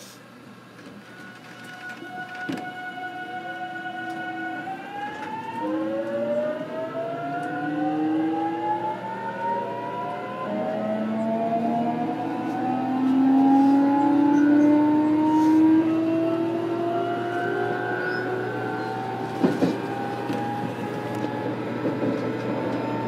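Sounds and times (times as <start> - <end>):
electric train inverter whine: 0.0 - 23.0
train running rumble: 18.0 - 23.0.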